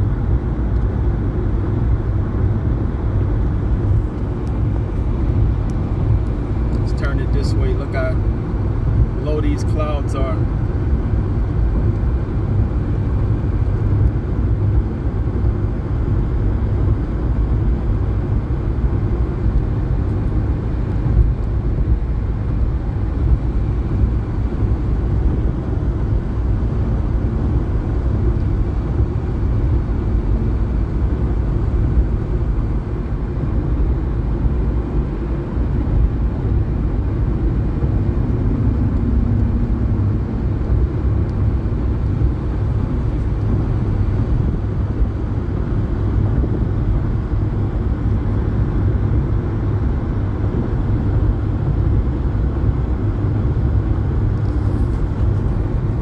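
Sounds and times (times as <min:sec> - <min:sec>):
car cabin road rumble: 0:00.0 - 0:56.0.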